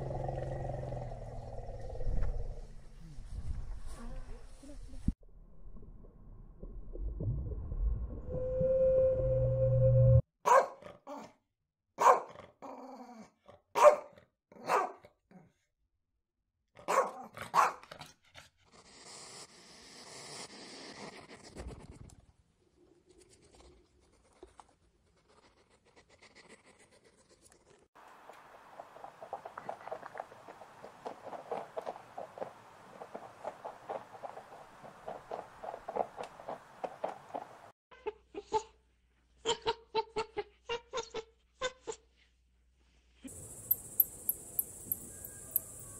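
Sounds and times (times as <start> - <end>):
whale call: 8.1 - 10.2
dog barking: 10.4 - 11.3, 12.0 - 12.4, 13.8 - 15.1, 16.8 - 17.9.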